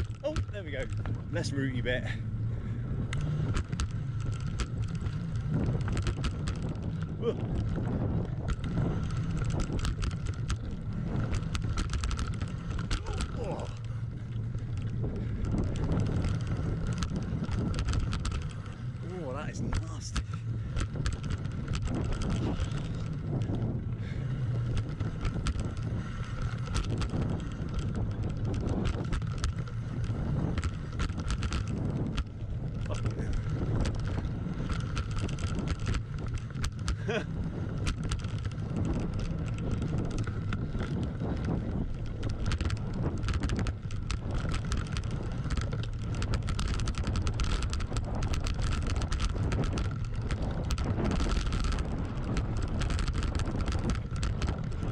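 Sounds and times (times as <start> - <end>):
bike clicking and rattling: 0.0 - 54.9
tyres rumbling over gravel: 0.0 - 54.9
wind buffeting microphone: 0.0 - 54.9.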